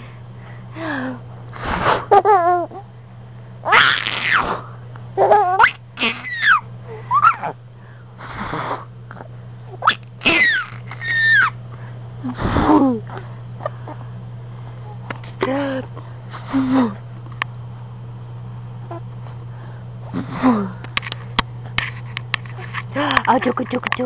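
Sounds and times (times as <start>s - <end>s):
steady low hum: 0.0s - 24.0s
baby laughing: 2.1s - 2.8s, 5.2s - 7.6s, 9.8s - 11.6s.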